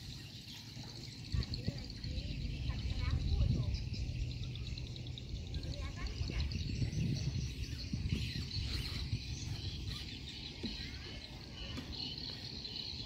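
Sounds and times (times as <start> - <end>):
bird chirps: 0.0 - 13.0
wind rumble on microphone: 1.1 - 10.8.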